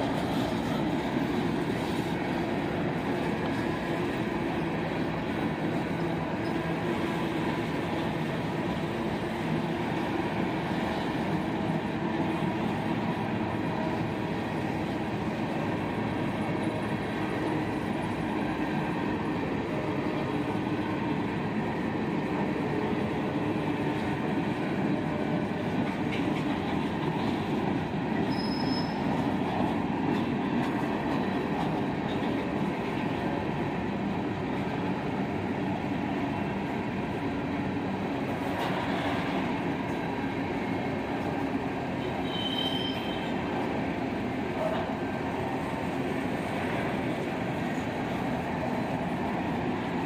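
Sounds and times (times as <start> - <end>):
freight train rolling past: 0.0 - 50.0
high wheel squeals: 28.2 - 29.1, 42.2 - 43.3.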